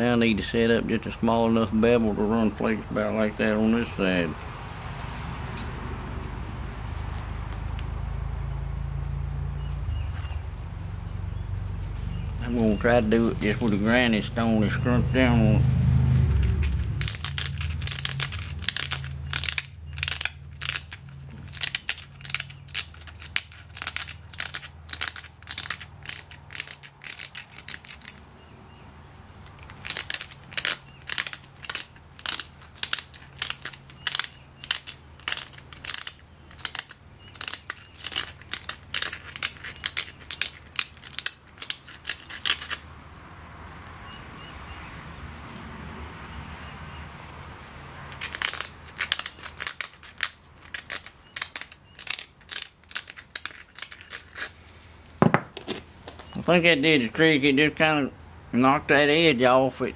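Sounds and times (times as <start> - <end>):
stone scraping stone edge: 48.2 - 54.6.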